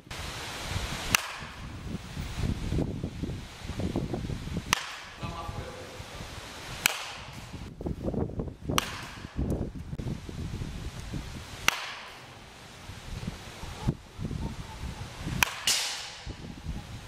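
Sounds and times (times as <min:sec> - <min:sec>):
bat cracking ball: 0:01.1 - 0:01.7, 0:04.7 - 0:05.2, 0:06.8 - 0:07.6, 0:08.7 - 0:09.5, 0:11.6 - 0:12.4, 0:15.3 - 0:16.4.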